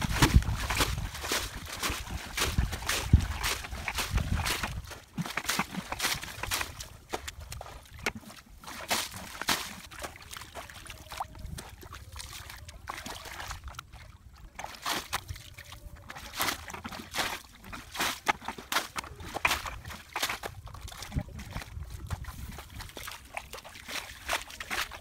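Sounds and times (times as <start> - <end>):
water sloshing: 0.0 - 25.0
water splashing from bucket: 0.0 - 25.0.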